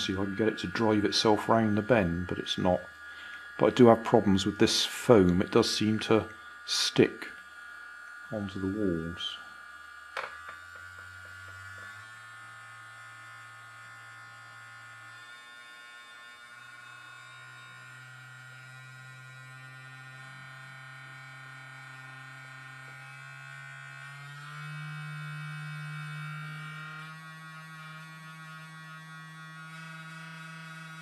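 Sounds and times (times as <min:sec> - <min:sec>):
small motor buzzing: 0:00.0 - 0:31.0.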